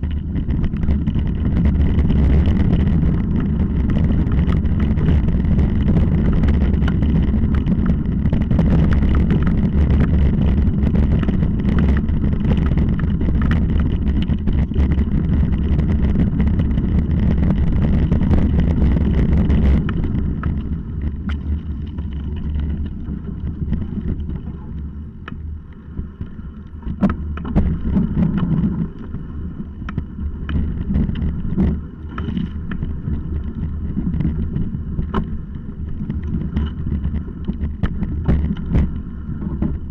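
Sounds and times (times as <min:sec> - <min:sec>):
mountain bike rattling: 0:00.0 - 0:39.9
wind on microphone: 0:00.0 - 0:39.9
bike knocking over stones: 0:26.8 - 0:28.9.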